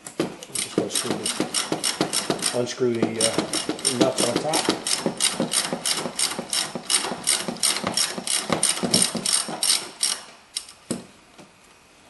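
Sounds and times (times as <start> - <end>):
ratchet wrench clicking: 0.6 - 2.6, 3.2 - 10.8.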